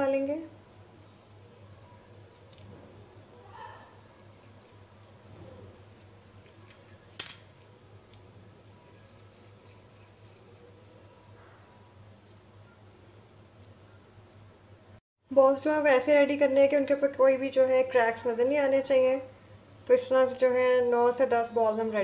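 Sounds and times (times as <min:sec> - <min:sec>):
crickets chirping: 0:00.0 - 0:22.0
sharp clink: 0:07.2 - 0:07.6.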